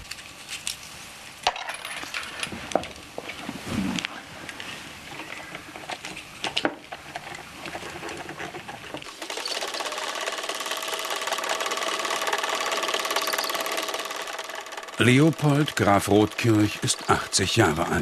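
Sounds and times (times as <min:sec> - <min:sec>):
film reel clicks and knocks: 0:05.8 - 0:17.4
projector mechanical clatter: 0:05.8 - 0:17.8
projector motor hum: 0:08.6 - 0:18.0.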